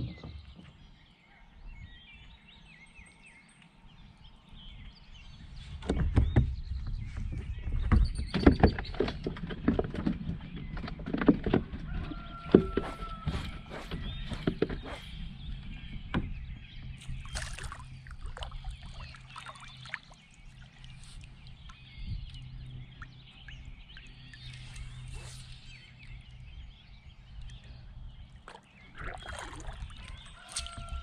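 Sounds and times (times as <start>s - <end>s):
water splashing and sloshing: 5.5s - 26.5s, 27.4s - 31.0s.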